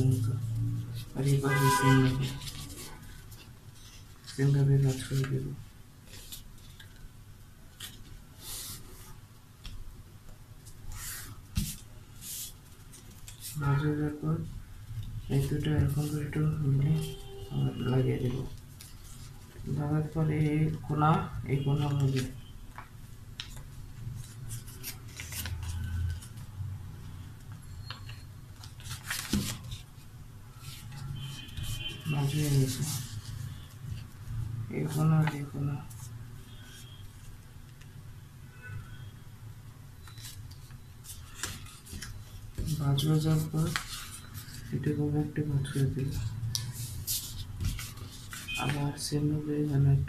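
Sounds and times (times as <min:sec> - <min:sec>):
paper rustling and crinkling: 0:00.0 - 0:07.1, 0:10.6 - 0:14.0, 0:21.6 - 0:26.6, 0:28.1 - 0:34.2, 0:40.0 - 0:45.0, 0:45.7 - 0:49.2.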